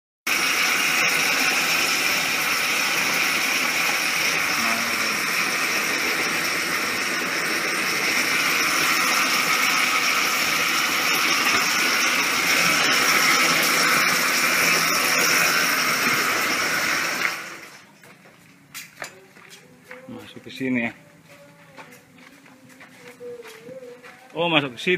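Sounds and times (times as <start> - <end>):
concrete mixer and conveyor running: 0.3 - 18.0.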